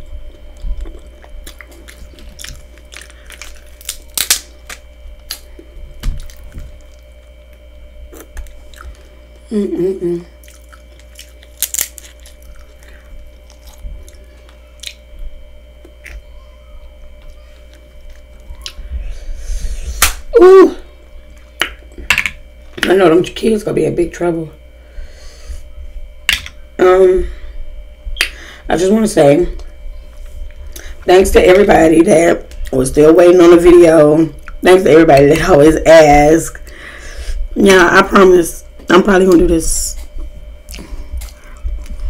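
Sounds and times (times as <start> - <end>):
crab shells cracking: 1.0 - 7.2, 10.5 - 15.1
person humming: 9.4 - 10.4
mouth chewing: 10.4 - 15.1.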